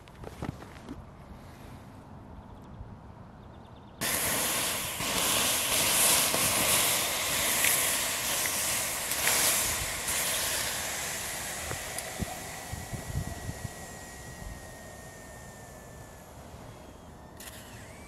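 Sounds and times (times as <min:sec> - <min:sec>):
embers popping: 0:04.0 - 0:13.4
water hissing on hot embers: 0:04.0 - 0:16.7.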